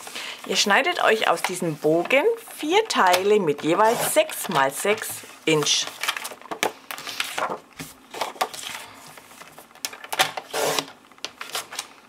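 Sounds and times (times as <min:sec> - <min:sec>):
cardstock shuffling and rustling: 0:00.4 - 0:10.1
trimmer blade scraping through card: 0:10.5 - 0:10.9.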